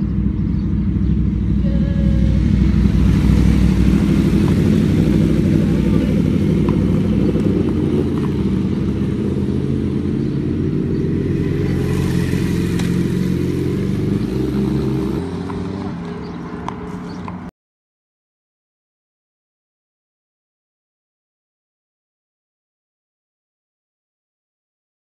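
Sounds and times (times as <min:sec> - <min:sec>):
motorcycles and cars passing: 0:00.0 - 0:17.5.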